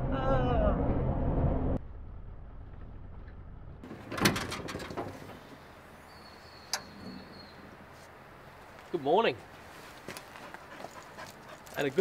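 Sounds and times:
clatter of knocks and clicks: 0:03.9 - 0:05.4.

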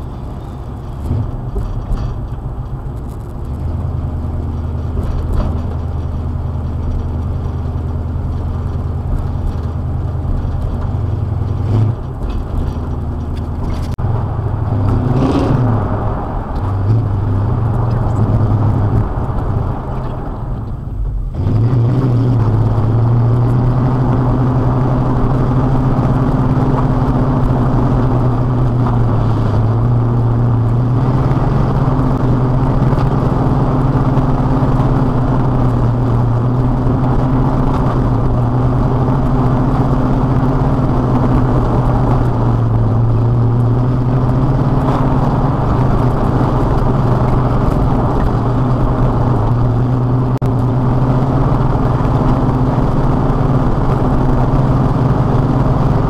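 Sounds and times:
road noise: 0:00.0 - 0:56.0
truck engine droning: 0:00.0 - 0:56.0.

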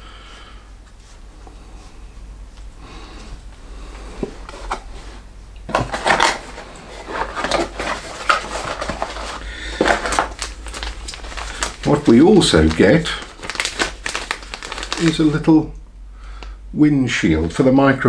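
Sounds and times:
cardboard box rustling and scraping: 0:04.4 - 0:11.4.

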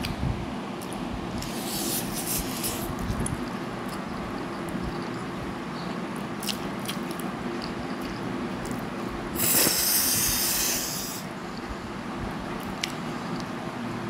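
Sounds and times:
wet chewing clicks: 0:03.2 - 0:09.6, 0:12.6 - 0:13.6
slurping noodles: 0:09.4 - 0:11.2.

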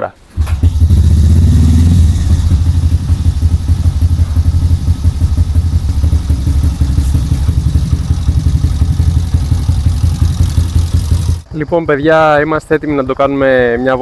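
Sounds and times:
motorcycle engine idling: 0:00.4 - 0:12.2.

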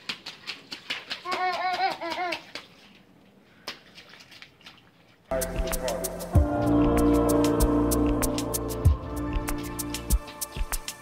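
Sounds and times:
boots splashing in puddle: 0:00.0 - 0:05.2
high-pitched laughter: 0:01.2 - 0:02.5.

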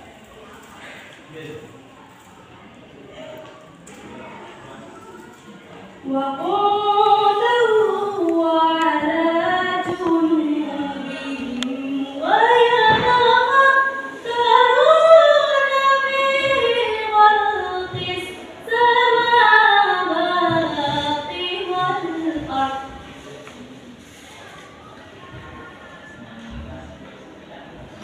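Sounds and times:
woman reciting melodically: 0:05.8 - 0:23.4.

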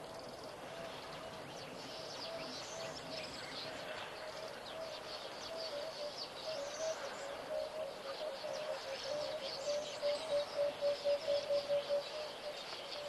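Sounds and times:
dove cooing: 0:04.4 - 0:13.0.

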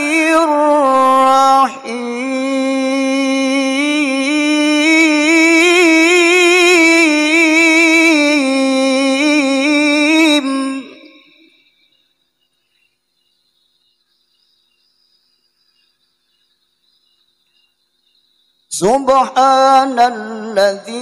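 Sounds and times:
man reciting melodically into microphone: 0:00.0 - 0:11.6, 0:18.7 - 0:21.0.

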